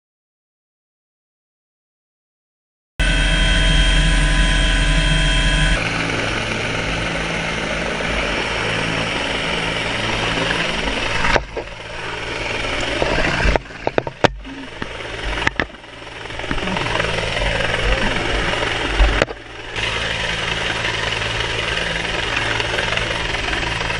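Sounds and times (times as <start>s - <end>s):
helicopter rotor and engine: 3.0s - 23.9s.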